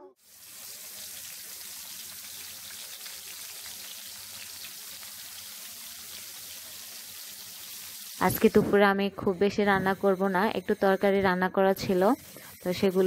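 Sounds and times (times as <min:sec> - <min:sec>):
oil sizzling and crackling: 0:00.1 - 0:08.6.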